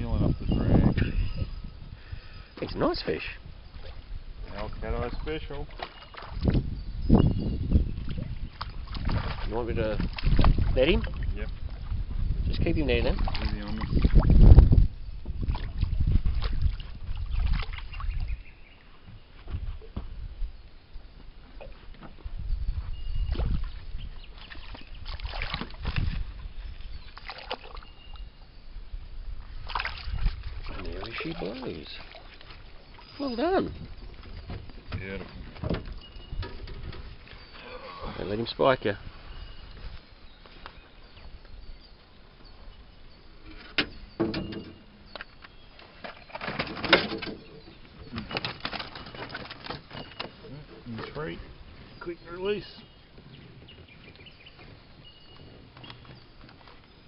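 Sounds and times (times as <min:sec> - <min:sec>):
fish splashing at water surface: 0:24.4 - 0:26.1, 0:27.2 - 0:27.9, 0:29.6 - 0:33.0
net rustling and scraping: 0:48.2 - 0:50.4.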